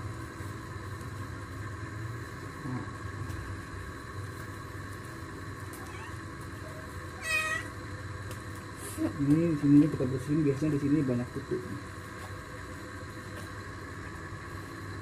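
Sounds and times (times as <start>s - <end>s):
low mechanical rumble: 0.0s - 15.0s.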